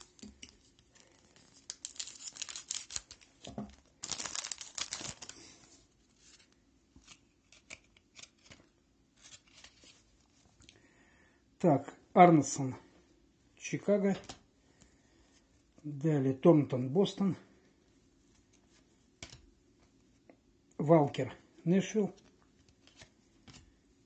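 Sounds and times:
cards clicking and rustling: 0.0s - 5.4s, 6.2s - 10.0s, 22.6s - 23.7s
wrapper crinkling and tearing: 0.0s - 6.5s.

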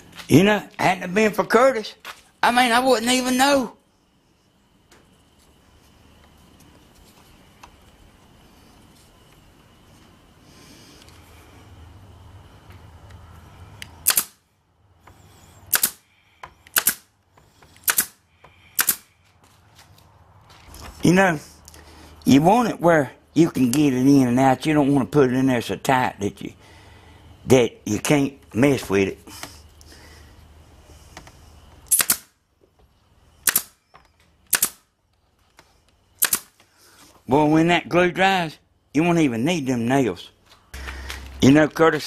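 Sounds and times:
pin nailer firing: 14.0s - 14.4s, 15.7s - 16.0s, 16.7s - 17.1s, 17.8s - 18.2s, 18.8s - 19.1s, 31.9s - 32.3s, 33.4s - 33.8s, 34.5s - 34.9s, 36.2s - 36.6s.

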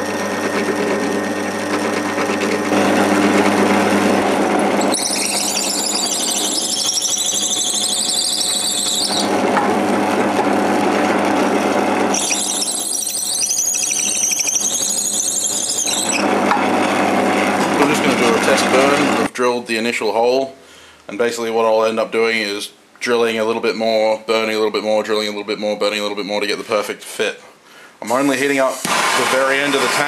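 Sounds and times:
drill bit squealing: 0.0s - 9.4s, 12.1s - 16.4s
drill press running: 0.0s - 19.3s, 28.6s - 30.0s.

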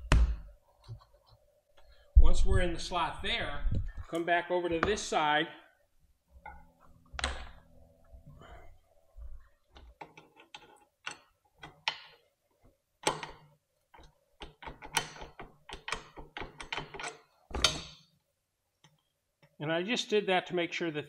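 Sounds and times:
metallic clicks and knocks: 9.7s - 12.2s, 13.0s - 18.1s.

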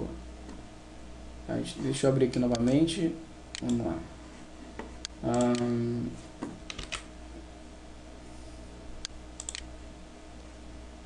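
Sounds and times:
faint steady hum: 0.0s - 11.0s
keyboard clicks: 5.3s - 5.7s, 6.7s - 7.1s, 9.0s - 9.7s
computer mouse clicks: 6.7s - 7.1s, 9.0s - 9.7s.

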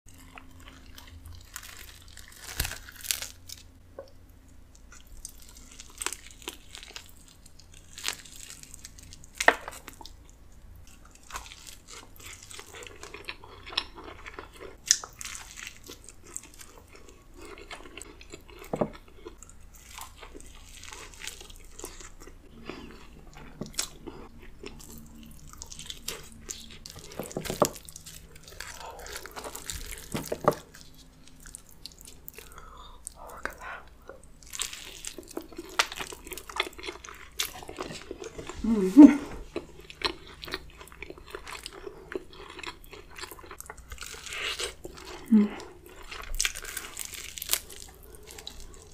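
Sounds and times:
crispy skin crunching: 0.1s - 3.8s, 4.7s - 48.9s
chewing: 0.1s - 48.9s
meat torn apart by hand: 1.4s - 3.7s.

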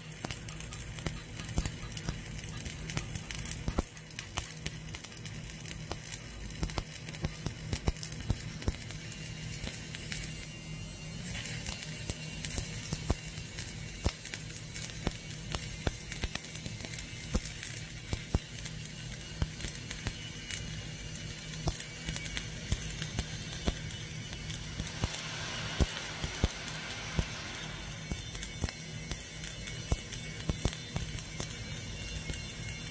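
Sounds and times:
welding arc crackling and popping: 0.0s - 32.9s
low steady hum: 22.4s - 32.9s.

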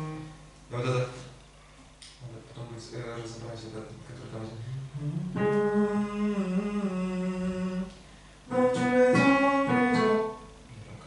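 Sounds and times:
instrumental accompaniment: 0.0s - 0.4s, 4.6s - 7.8s, 8.5s - 10.6s.

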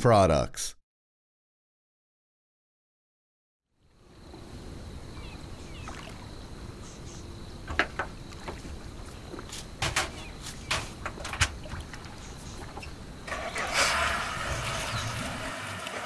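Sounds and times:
rumble of water and breeze: 4.0s - 16.0s
knocks and clunks on boat: 7.6s - 13.0s.

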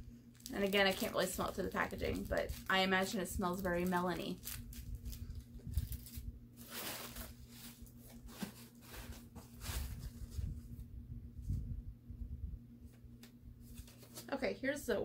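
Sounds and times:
faint low hum: 0.0s - 15.0s
packaging and paper rustling: 0.4s - 10.8s, 13.6s - 14.4s.

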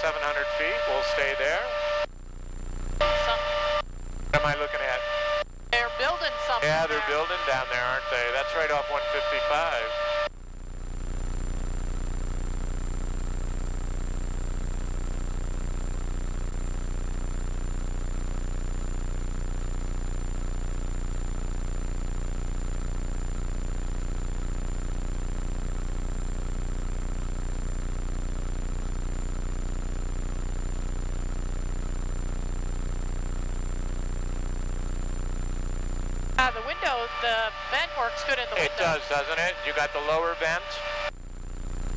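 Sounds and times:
high whine: 0.0s - 2.1s, 2.8s - 10.3s, 33.3s - 41.9s
helicopter engine and rotors drone: 2.7s - 41.9s.

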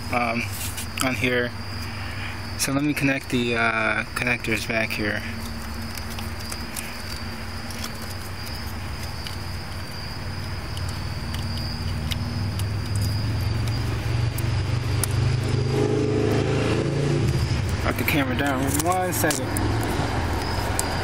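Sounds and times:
car engine running: 4.4s - 21.0s.

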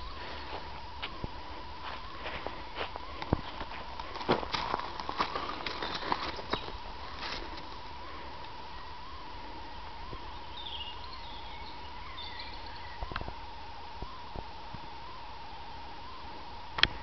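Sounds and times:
steady hum: 0.0s - 17.0s
faint high chirps: 4.8s - 16.4s.

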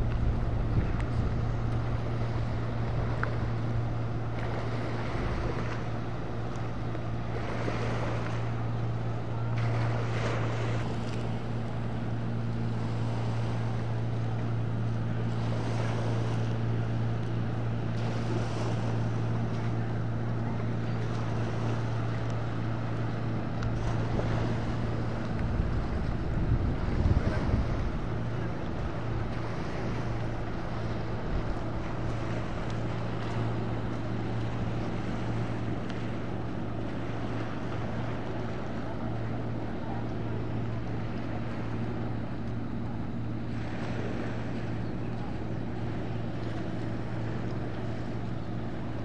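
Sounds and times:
wind on microphone: 0.0s - 5.7s, 23.6s - 33.8s
boat engine drone: 0.0s - 49.0s
water rushing past hull: 0.0s - 49.0s.

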